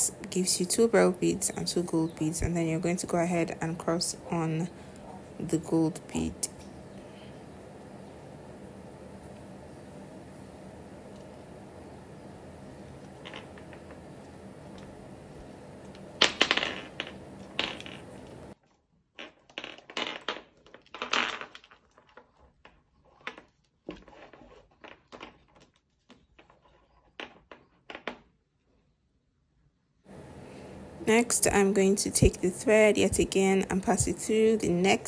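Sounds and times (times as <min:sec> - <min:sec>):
beads clattering: 0:13.0 - 0:18.6, 0:19.2 - 0:28.3.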